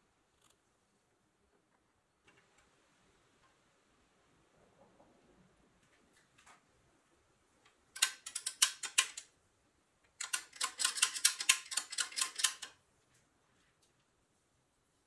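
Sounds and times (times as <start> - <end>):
toy winch ratchet clicking: 8.0 - 9.3, 10.2 - 12.8.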